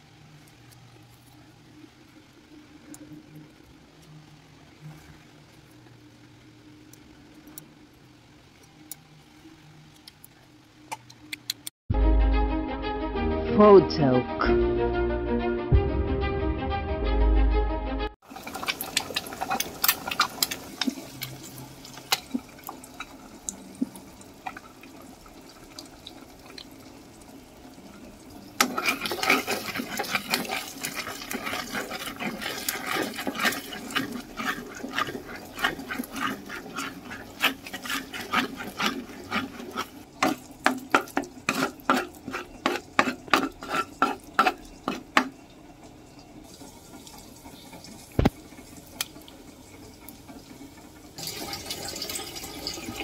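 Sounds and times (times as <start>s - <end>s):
eggs sizzling in a pan: 0.0s - 11.7s, 18.2s - 53.0s
spatula scraping and tapping pan: 18.5s - 23.2s, 28.6s - 45.4s.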